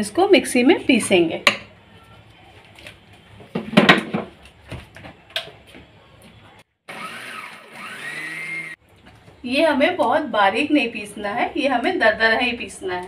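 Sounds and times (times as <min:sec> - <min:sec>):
mixer grinder motor whining: 0:06.9 - 0:08.8.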